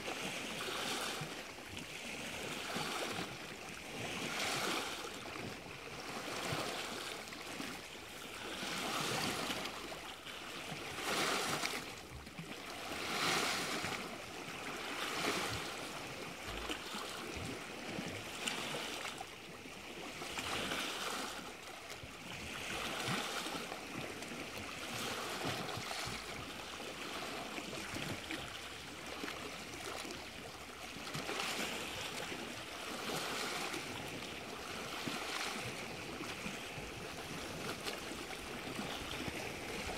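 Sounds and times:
small waves lapping: 0.0s - 39.9s.

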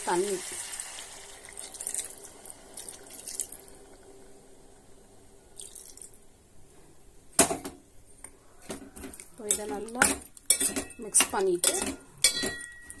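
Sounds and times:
water trickling into a pot: 0.0s - 6.2s
faint steady hum: 0.0s - 9.7s.

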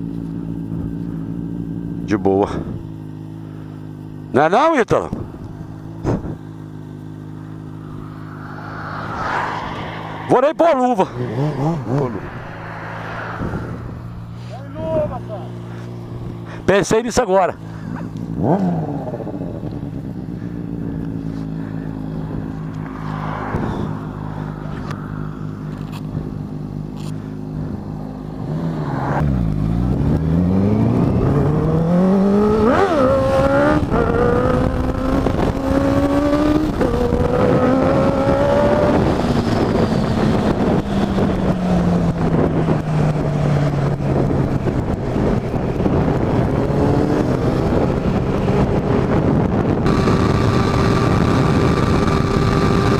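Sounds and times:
motorcycle engine idling and revving: 0.0s - 52.9s
wind rush: 7.7s - 16.7s, 22.2s - 26.5s, 27.6s - 52.9s.

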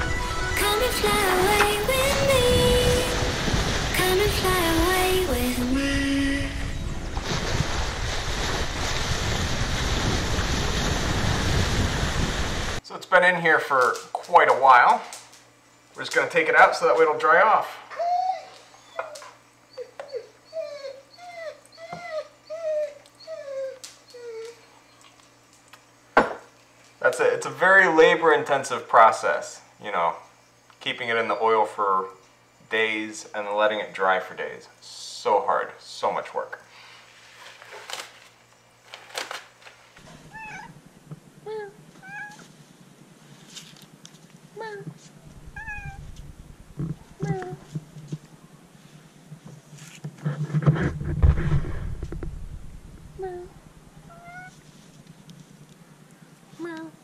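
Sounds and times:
dog whining: 17.9s - 25.1s, 40.2s - 40.8s, 41.5s - 42.5s, 44.6s - 46.1s, 53.2s - 54.6s
cat meowing: 40.3s - 40.8s, 42.0s - 42.5s, 45.4s - 46.2s, 54.0s - 54.6s.

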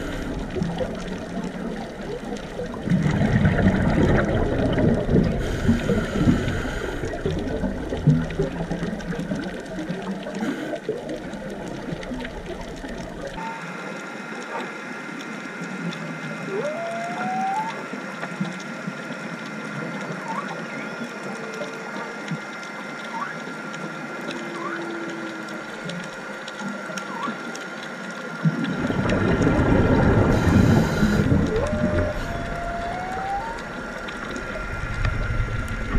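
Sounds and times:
scuba bubbles rushing: 0.0s - 13.4s, 28.4s - 35.9s
steady underwater hum: 0.0s - 35.9s
short rising squeals: 30.4s - 35.6s.

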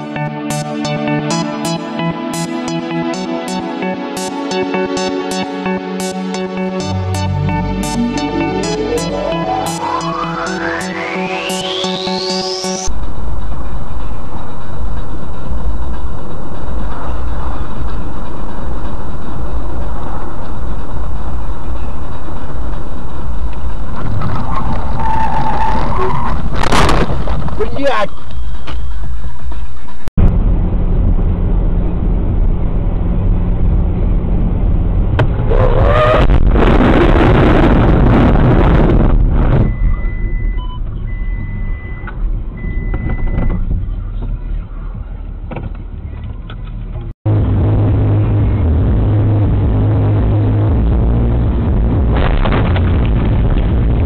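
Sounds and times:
steady high-pitched tone: 0.0s - 14.8s
long high electronic beeps: 0.1s - 12.9s
low rumble of car driving: 12.8s - 54.0s.

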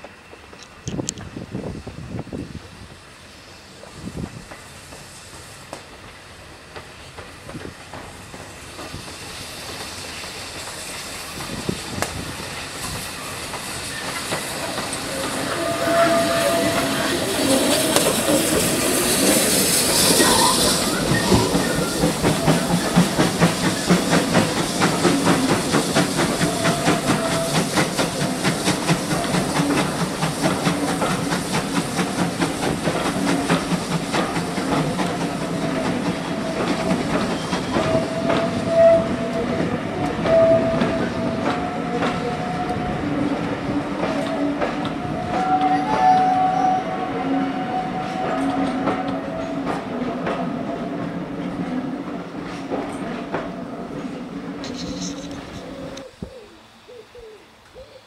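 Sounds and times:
wheels clickety-clack on rail joints: 0.0s - 2.8s, 3.8s - 56.1s
steam locomotive hissing: 0.0s - 57.9s
thin squeal: 15.0s - 22.1s, 54.6s - 56.0s.

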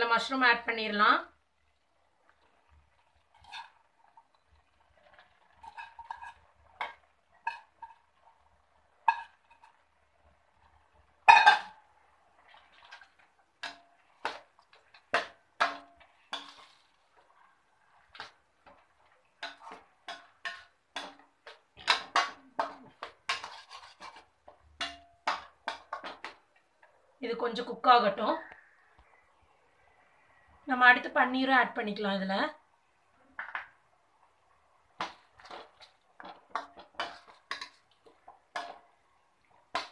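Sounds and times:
metal spatula scraping a pan: 3.2s - 8.4s, 9.0s - 9.9s, 10.6s - 11.8s, 12.4s - 26.4s, 35.0s - 39.9s.

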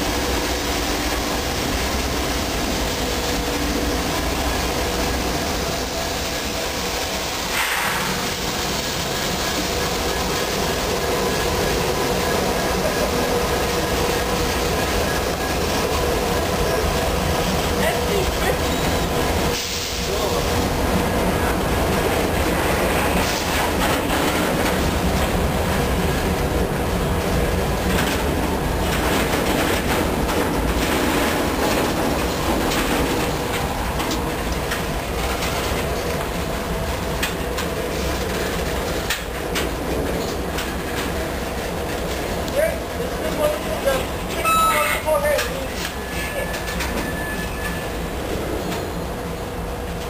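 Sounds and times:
train wheels rumbling on rails: 0.0s - 50.0s
wheels clicking over rail joints: 23.0s - 44.4s
faint ringing tones: 44.4s - 45.1s.

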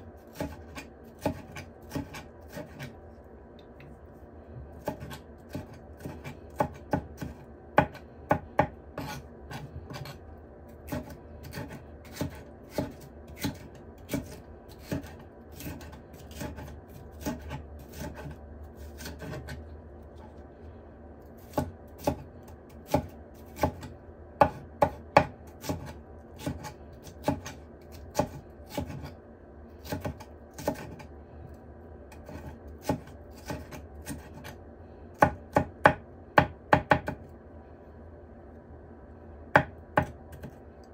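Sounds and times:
knife chopping on wooden board: 0.2s - 2.9s, 4.8s - 10.2s, 10.8s - 19.6s, 21.4s - 29.1s, 29.8s - 31.0s, 32.1s - 34.6s, 35.2s - 37.2s, 39.5s - 40.6s.

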